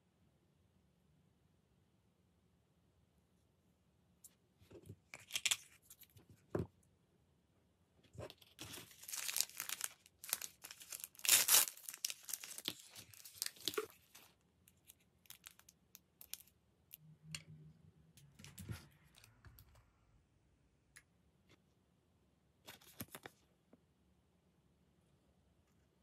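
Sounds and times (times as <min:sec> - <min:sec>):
plastic wrapper tearing and crinkling: 0:05.2 - 0:06.0, 0:08.4 - 0:16.5.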